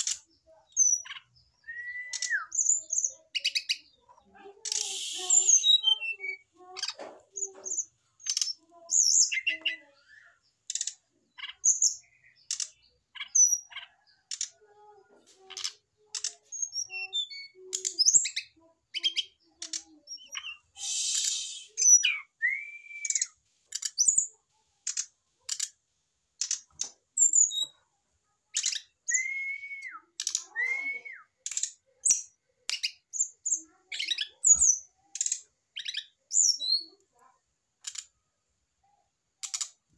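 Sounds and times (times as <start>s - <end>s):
bird singing rapid chirps: 0.0s - 4.0s, 4.6s - 14.5s, 15.6s - 25.7s.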